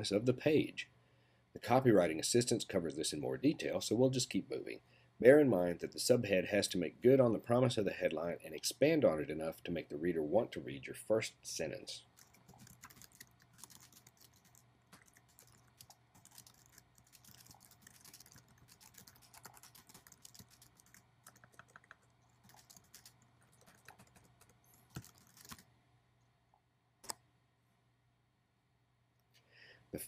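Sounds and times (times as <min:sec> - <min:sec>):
fast keyboard typing: 0:12.1 - 0:25.6.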